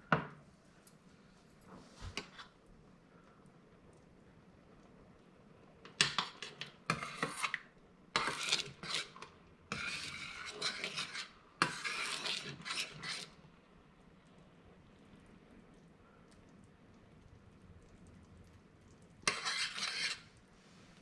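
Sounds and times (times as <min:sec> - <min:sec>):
metal spoon scraping a pan: 0:02.1 - 0:02.6, 0:05.9 - 0:13.4, 0:19.2 - 0:20.4.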